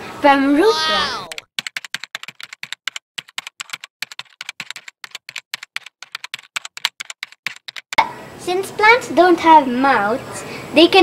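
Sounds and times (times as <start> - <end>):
rapid keyboard typing: 1.3 - 8.0.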